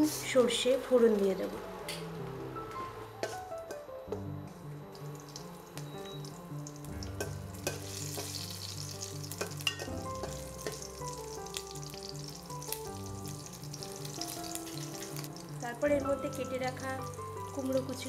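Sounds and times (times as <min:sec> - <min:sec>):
seeds and chillies sizzling in oil: 0:00.0 - 0:18.0
spatula stirring: 0:07.0 - 0:15.5.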